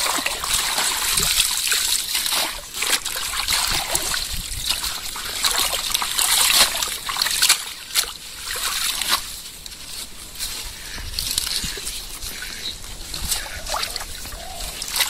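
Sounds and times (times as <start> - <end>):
hands splashing in muddy water: 0.0 - 15.0
water running off plants: 0.0 - 15.0.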